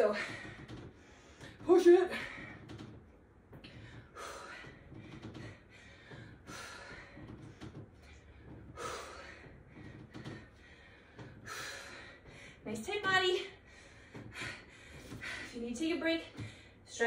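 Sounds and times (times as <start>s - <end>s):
woman breathing hard: 3.6s - 12.7s, 13.6s - 15.6s.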